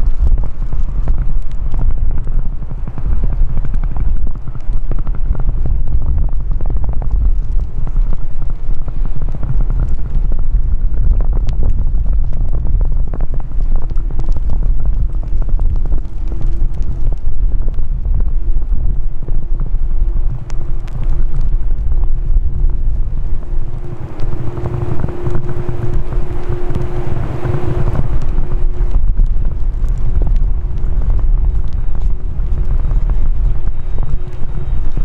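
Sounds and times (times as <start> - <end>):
wind buffeting microphone: 0.0 - 35.0
faint steady tone: 22.8 - 29.2.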